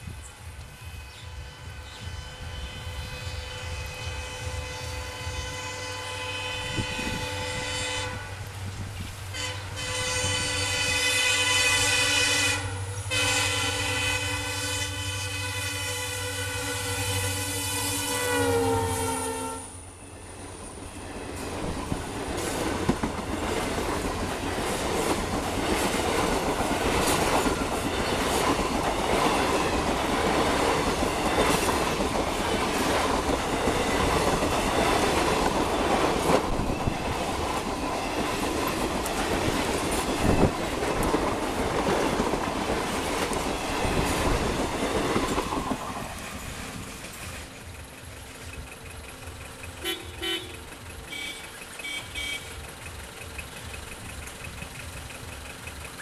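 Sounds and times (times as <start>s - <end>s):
train coaches passing: 0.0s - 56.0s
wheels clattering over rail joints: 20.8s - 56.0s.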